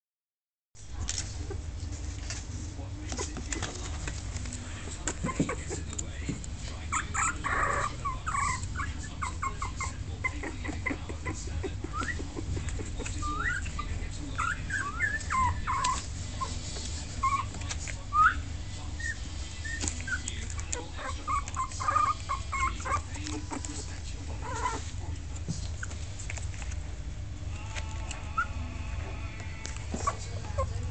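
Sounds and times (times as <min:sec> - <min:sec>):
puppies whimpering and squeaking: 0:03.2 - 0:30.9
soft clicks and rustles: 0:24.8 - 0:27.0.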